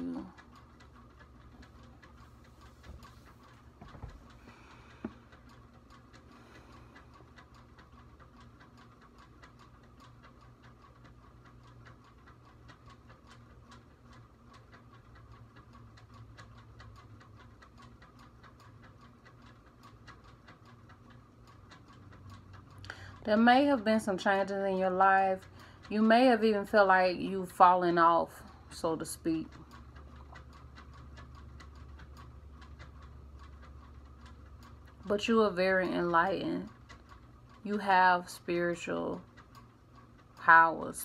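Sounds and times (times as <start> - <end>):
clock ticking: 0.0 - 41.0.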